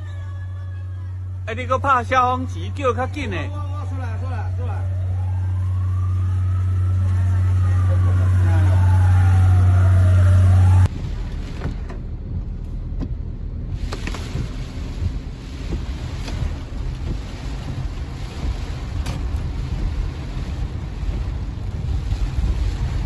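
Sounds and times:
rain noise: 0:01.0 - 0:23.0
car rumbling on wet road: 0:01.1 - 0:23.0
wind noise: 0:10.4 - 0:23.0.

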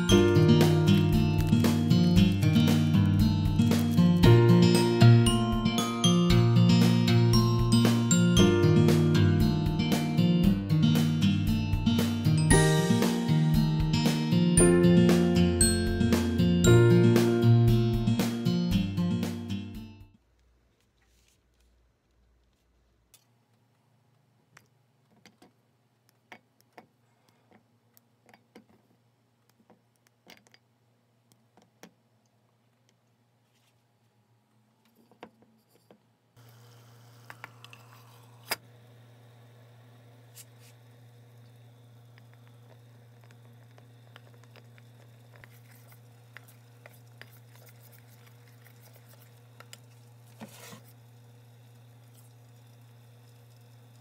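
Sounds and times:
steady low hum: 0:00.0 - 0:16.4.

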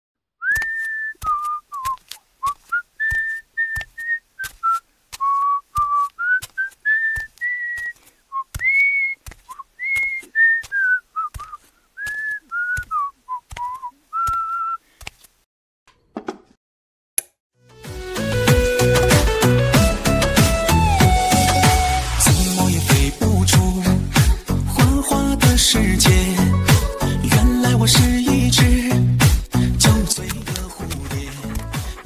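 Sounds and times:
whistled tune: 0:00.4 - 0:14.8, 0:18.2 - 0:22.4.

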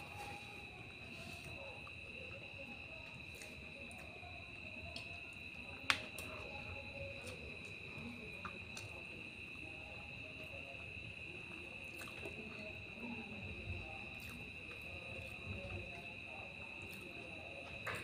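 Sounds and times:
person chewing food: 0:11.5 - 0:12.7.

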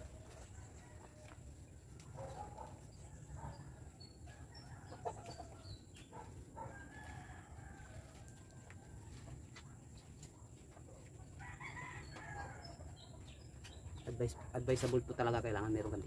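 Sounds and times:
rooster crowing: 0:06.6 - 0:09.2, 0:11.4 - 0:12.8.

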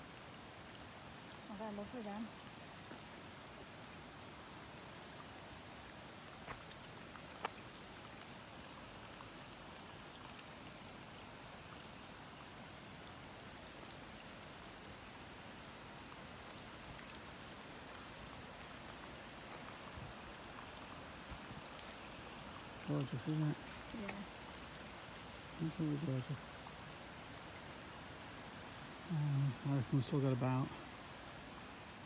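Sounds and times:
light rain hiss: 0:00.0 - 0:32.0
raindrop ticks: 0:01.5 - 0:03.2, 0:06.2 - 0:27.8.

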